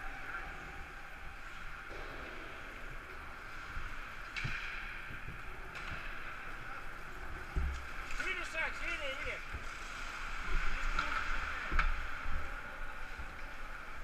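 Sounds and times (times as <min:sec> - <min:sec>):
distant skates scraping and clatter: 0:00.0 - 0:14.0.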